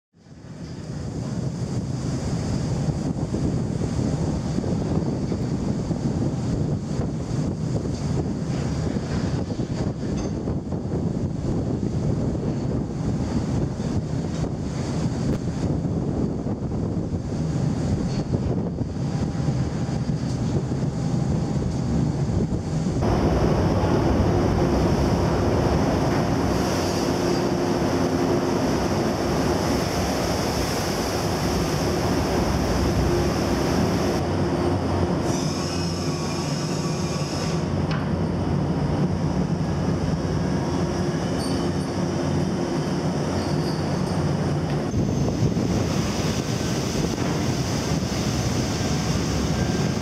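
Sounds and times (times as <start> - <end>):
wind: 0.1 - 50.0
ship deck machinery drone: 0.2 - 50.0
high mechanical whine: 18.1 - 50.0
sea waves: 23.0 - 36.4, 45.4 - 50.0.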